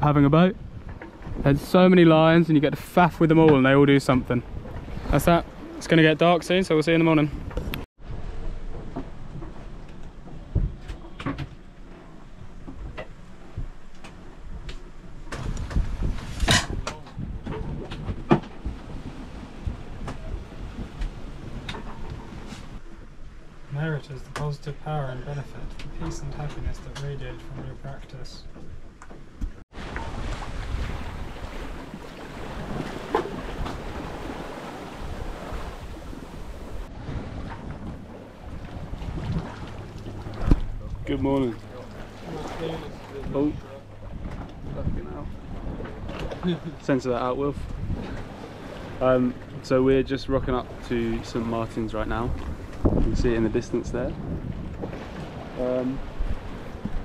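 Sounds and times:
wind buffeting microphone: 0.0s - 23.6s, 28.4s - 57.0s
water rushing along hull: 0.0s - 57.0s
knocks and clunks: 15.3s - 18.8s
steady low rumble: 36.0s - 48.3s.

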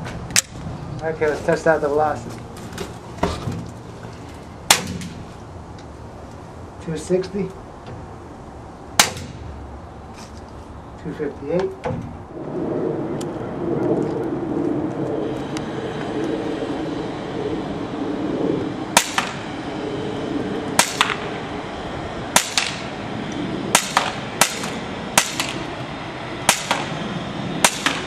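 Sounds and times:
paintball pistol shots: 4.7s - 5.2s, 9.0s - 9.4s, 19.0s - 19.4s, 20.8s - 21.2s, 22.4s - 22.9s, 23.7s - 25.6s, 26.5s - 27.0s, 27.6s - 28.0s.

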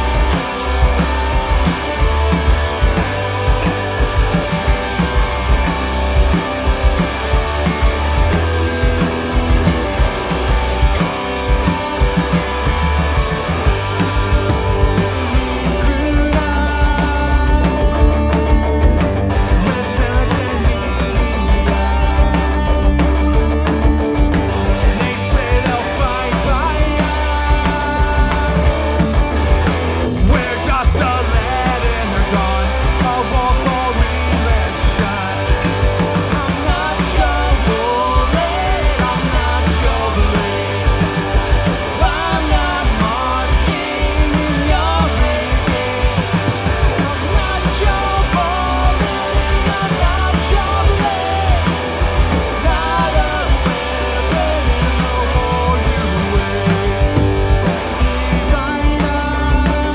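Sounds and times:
punk rock band playing: 0.0s - 59.9s
person singing: 30.3s - 41.3s, 41.9s - 57.0s.

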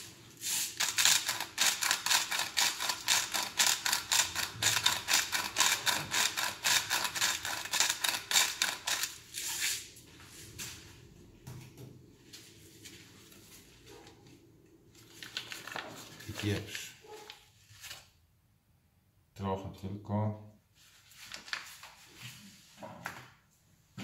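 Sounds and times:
salt mill grinding: 0.4s - 9.7s.

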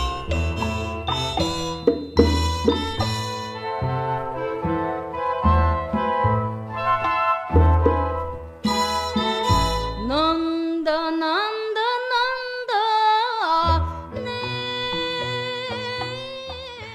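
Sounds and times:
instrumental accompaniment: 0.0s - 10.7s
woman singing: 9.8s - 16.9s.

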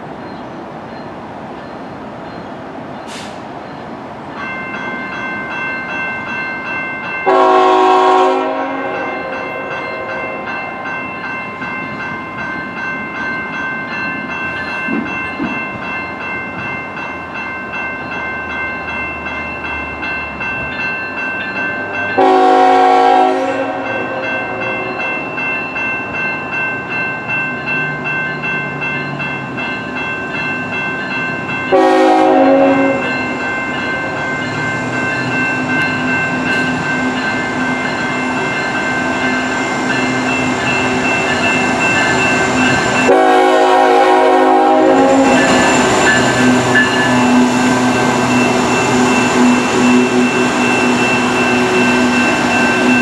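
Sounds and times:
level crossing warning bells: 0.0s - 53.0s
train rumbling past: 0.0s - 53.0s
locomotive air horn blasts: 7.3s - 9.7s, 22.2s - 24.2s, 31.7s - 33.1s, 43.1s - 45.6s.

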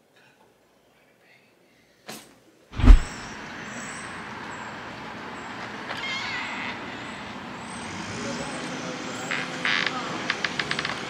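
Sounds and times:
heavy thump: 2.8s - 3.2s.

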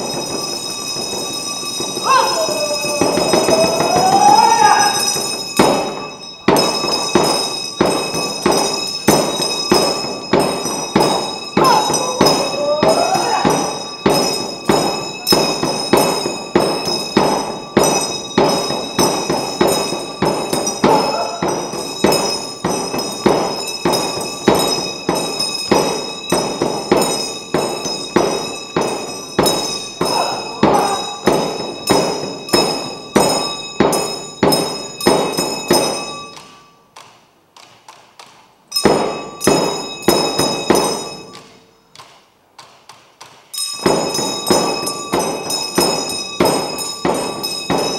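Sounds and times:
bells ringing: 0.0s - 37.0s, 38.7s - 41.9s, 43.5s - 47.9s
hand drums beating: 2.0s - 5.9s, 7.9s - 35.4s.

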